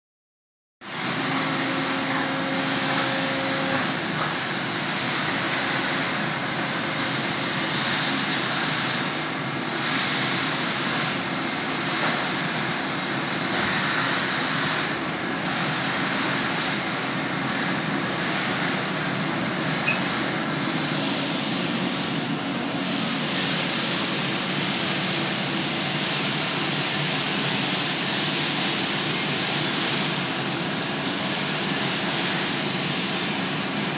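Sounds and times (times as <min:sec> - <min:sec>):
machinery rushing hiss: 0:16.0 - 0:33.9.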